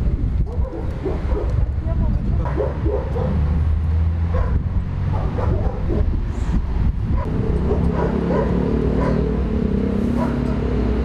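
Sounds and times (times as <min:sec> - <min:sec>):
vehicle engine humming: 0:00.0 - 0:11.0
dogs barking and yipping: 0:00.4 - 0:01.8, 0:02.4 - 0:03.6, 0:04.2 - 0:06.2, 0:07.1 - 0:09.4, 0:10.1 - 0:10.6.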